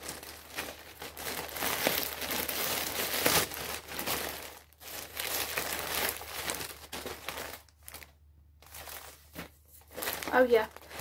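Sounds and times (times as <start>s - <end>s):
plastic bag crinkling and rustling: 0.0s - 11.0s.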